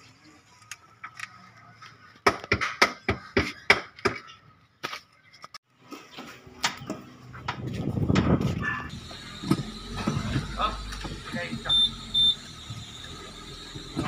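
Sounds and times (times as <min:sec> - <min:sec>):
car engine running: 0:08.9 - 0:14.0.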